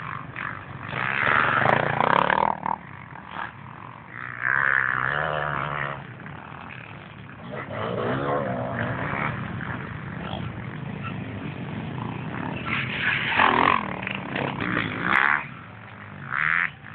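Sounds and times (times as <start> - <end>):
motorcycle engine revving: 0.0 - 16.9.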